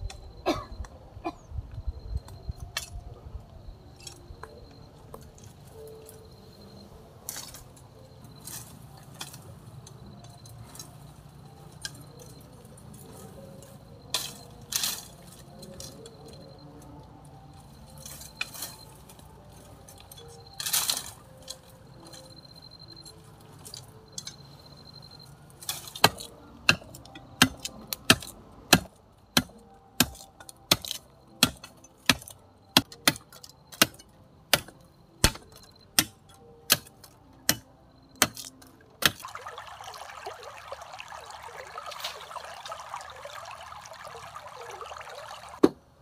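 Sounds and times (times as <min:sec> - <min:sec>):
water running: 0:39.1 - 0:45.6.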